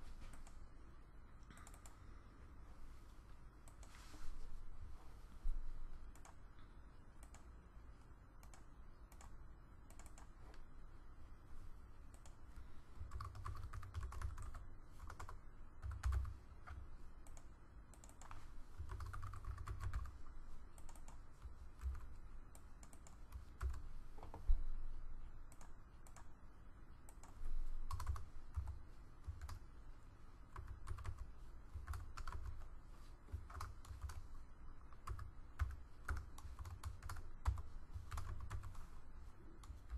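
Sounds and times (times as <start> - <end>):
typing on a keyboard: 8.4 - 10.4, 13.0 - 20.2, 20.8 - 24.4, 27.1 - 29.6, 30.5 - 32.7, 33.3 - 34.3, 34.9 - 38.9.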